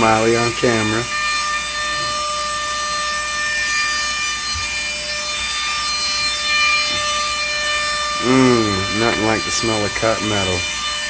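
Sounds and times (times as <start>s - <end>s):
angle grinder cutting metal: 0.0s - 11.0s.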